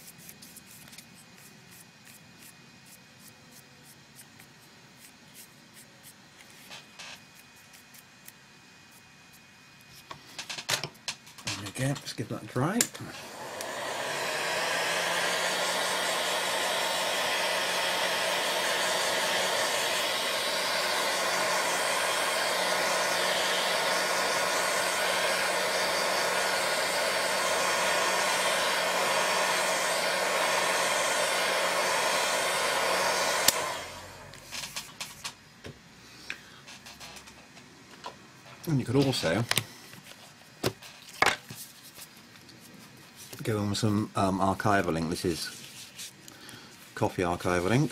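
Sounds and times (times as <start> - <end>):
hot-air dryer blowing: 12.6 - 34.8.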